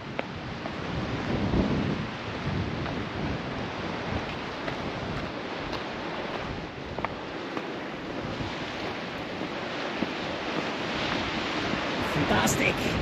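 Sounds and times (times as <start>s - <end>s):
sea surf: 0.0s - 13.0s
wind buffeting microphone: 0.0s - 13.0s.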